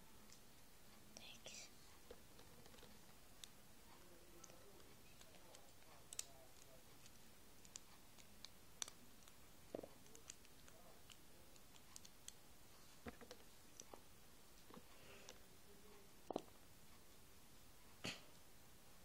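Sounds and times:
faint small clicks and taps: 0:01.9 - 0:12.4.

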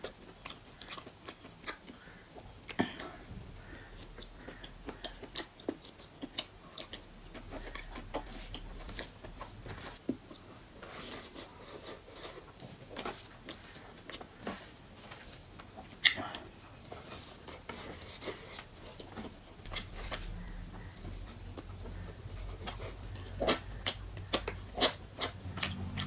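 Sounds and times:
wet chewing and lip smacks: 0:00.0 - 0:02.8, 0:03.6 - 0:09.6, 0:15.5 - 0:26.0.

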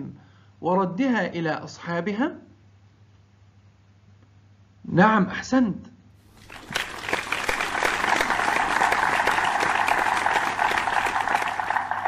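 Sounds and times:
crowd clapping: 0:06.3 - 0:12.0.

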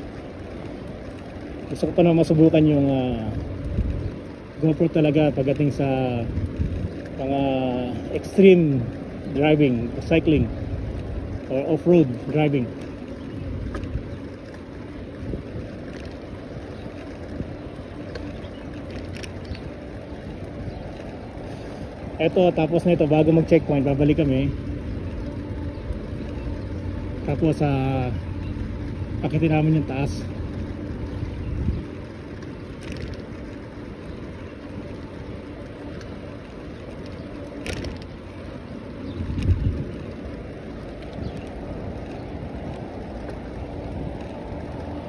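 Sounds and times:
wind rushing over microphone: 0:00.0 - 0:45.0
faint ticks: 0:31.0 - 0:38.2.

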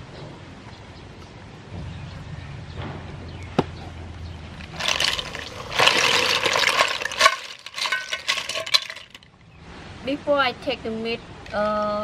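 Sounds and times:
water pouring and splashing: 0:04.6 - 0:09.3.

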